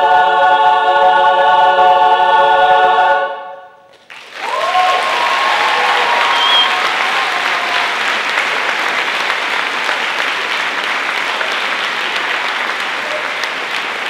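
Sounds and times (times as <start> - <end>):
audience applauding: 4.0 - 14.0.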